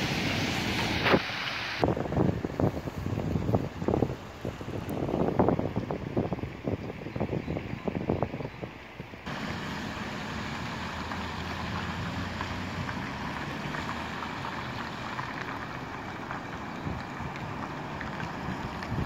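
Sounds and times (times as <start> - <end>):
tyre hiss on damp street: 0.0 - 5.7, 9.2 - 19.0
low engine rumble: 9.2 - 19.0.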